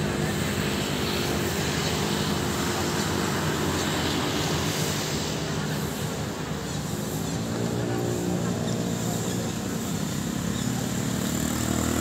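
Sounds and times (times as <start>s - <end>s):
engine drone: 0.0s - 12.0s
road noise: 0.0s - 12.0s.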